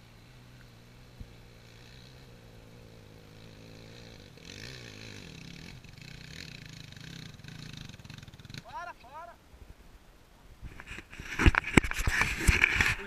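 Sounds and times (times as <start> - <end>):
motorcycle engine idling: 0.0 - 8.7
motorcycle engine revving: 0.0 - 8.8.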